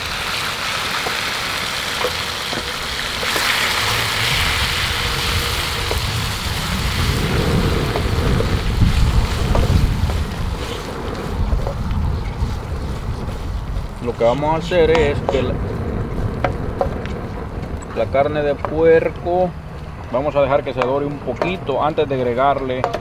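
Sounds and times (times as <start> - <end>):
meat sizzling in fat: 0.0 - 17.0
wind buffeting microphone: 0.0 - 23.0.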